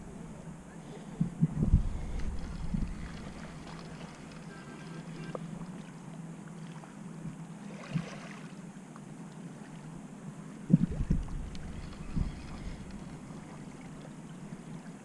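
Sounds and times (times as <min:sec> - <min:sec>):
wind on microphone: 0:00.0 - 0:04.0, 0:10.6 - 0:13.8
low bumps: 0:01.2 - 0:04.5, 0:10.7 - 0:13.5.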